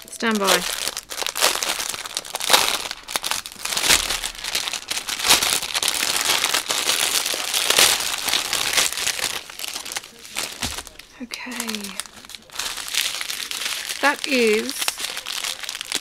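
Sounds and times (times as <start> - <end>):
plastic bag crinkling: 0.0 - 16.0.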